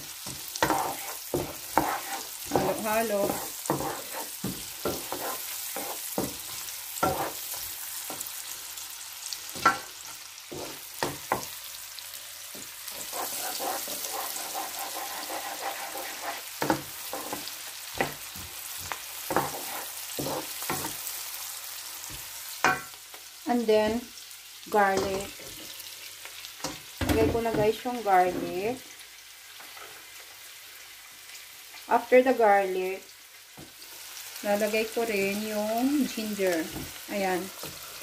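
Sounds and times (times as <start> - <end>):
onion sizzling in oil: 0.0 - 38.0
wooden spoon scraping pan: 0.2 - 8.2, 10.5 - 11.4, 12.6 - 21.0.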